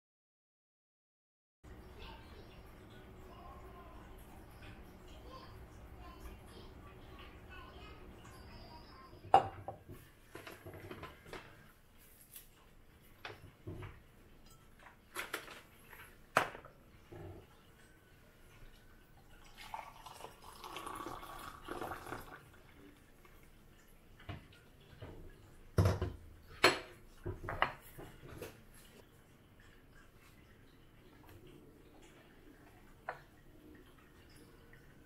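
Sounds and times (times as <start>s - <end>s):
knocks and clinks on counter: 9.3s - 9.9s
water pouring into a glass: 17.1s - 24.0s.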